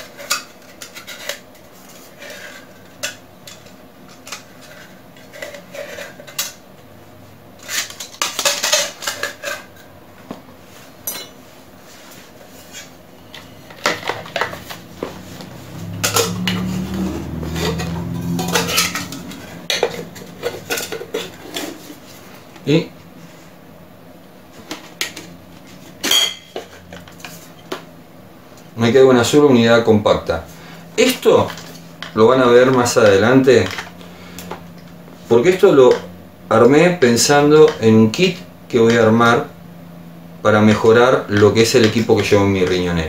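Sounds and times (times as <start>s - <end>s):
metal cans clinking and knocking: 15.8s - 21.8s.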